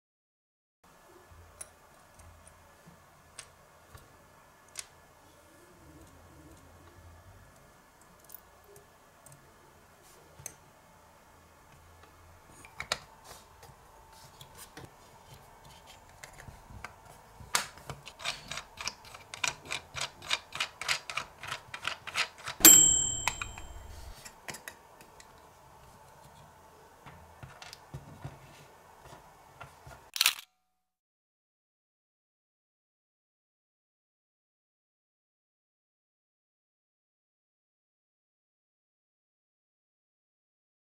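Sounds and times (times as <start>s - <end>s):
bright ding: 22.6s - 24.1s
faint steady hum: 22.6s - 27.6s.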